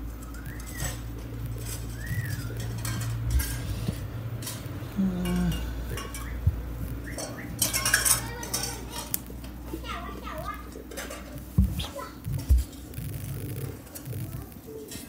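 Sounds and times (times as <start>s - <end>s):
steady low hum: 0.0s - 8.2s, 8.8s - 14.9s
dishes and cutlery clinking: 0.4s - 9.2s, 10.8s - 11.4s.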